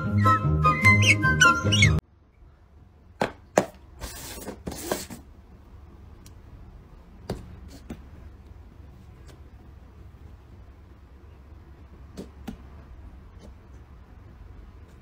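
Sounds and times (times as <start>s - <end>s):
music: 0.0s - 2.0s
paper cups scraping on table: 4.0s - 5.2s.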